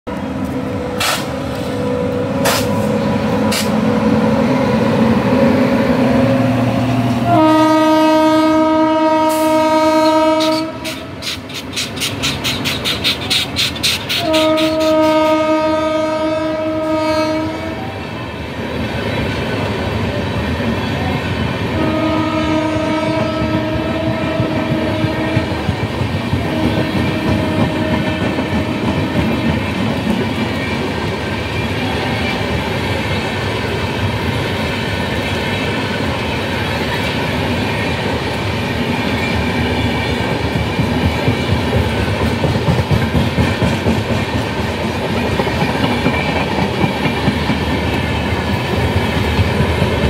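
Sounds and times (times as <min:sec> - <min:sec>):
train rumble: 0:00.1 - 0:50.0
locomotive horn blasts: 0:07.2 - 0:11.1, 0:14.2 - 0:18.0, 0:21.7 - 0:25.6, 0:26.4 - 0:29.4.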